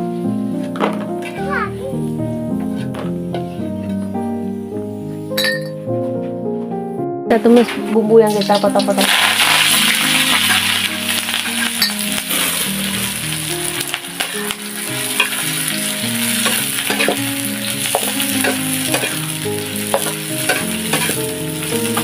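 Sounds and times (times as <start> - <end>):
vegetables sizzling in hot oil: 8.3 - 22.0.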